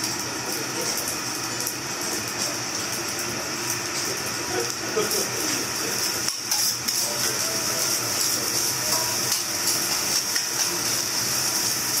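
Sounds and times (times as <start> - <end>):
rice sizzling on a griddle: 0.0 - 12.0
metal spatulas clicking and scraping: 6.3 - 7.0.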